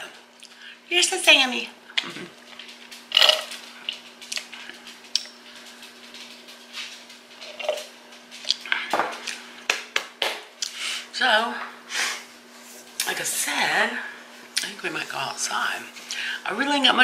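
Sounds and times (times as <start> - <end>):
ice cubes clinking in a tumbler: 3.1 - 3.6.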